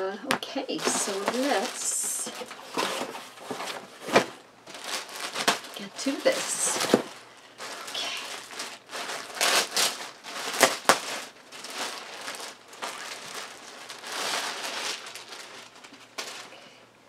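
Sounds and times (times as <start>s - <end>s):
plastic bag crinkling: 0.4s - 17.0s.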